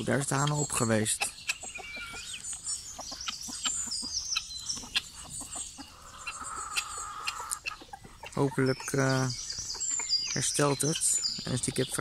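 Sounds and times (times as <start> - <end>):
chickens clucking: 0.0 - 12.0
high bird chirps: 0.0 - 12.0.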